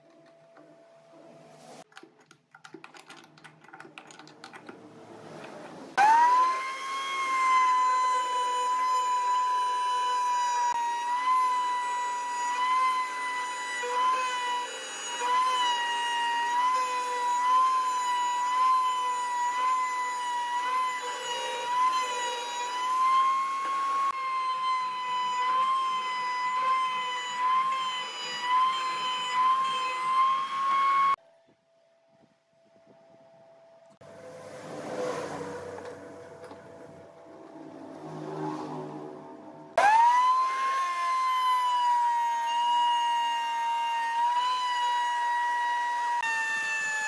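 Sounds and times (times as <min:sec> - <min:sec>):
router whining cutting wood: 0:05.9 - 0:31.2, 0:39.7 - 0:47.0.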